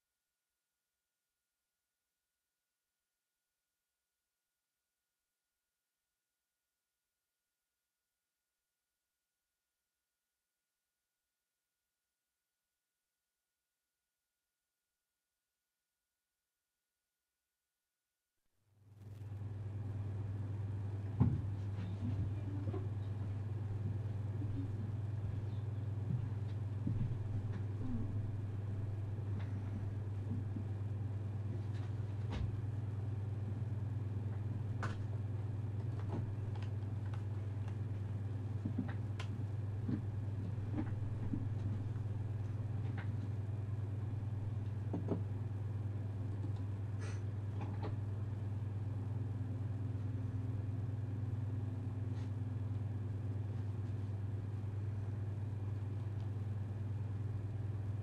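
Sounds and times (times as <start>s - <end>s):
low hum: 18.8s - 58.0s.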